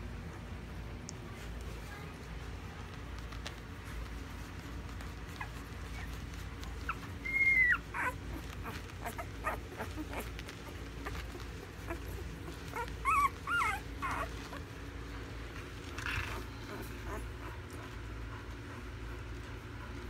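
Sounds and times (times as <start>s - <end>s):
puppies squeaking: 5.2s - 17.8s.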